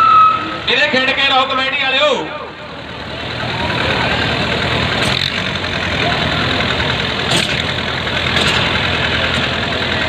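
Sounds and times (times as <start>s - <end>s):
tractor diesel engines running: 0.0s - 10.0s.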